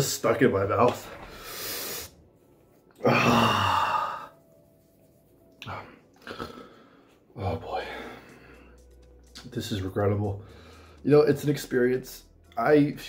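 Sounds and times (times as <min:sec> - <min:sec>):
man sighing heavily: 0:03.0 - 0:04.3.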